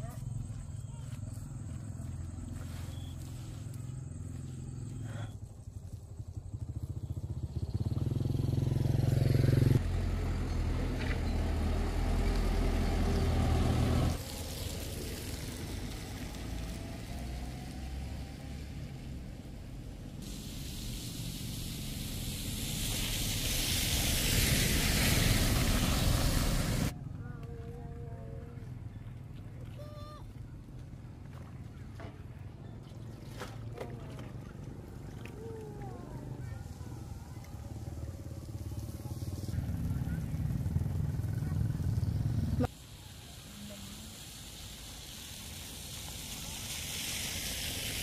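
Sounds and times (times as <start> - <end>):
motorbike engine rumble: 0.0 - 44.2
rising hiss of approaching vehicle: 7.5 - 26.9, 36.0 - 48.0.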